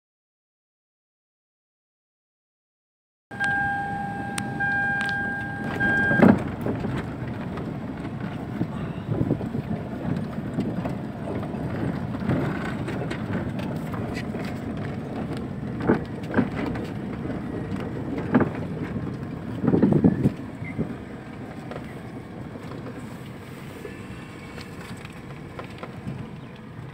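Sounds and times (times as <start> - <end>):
high steady tone: 3.3 - 6.4
tyres and engine rumble: 3.3 - 26.9
car knocks and thuds over bumps: 5.5 - 23.0.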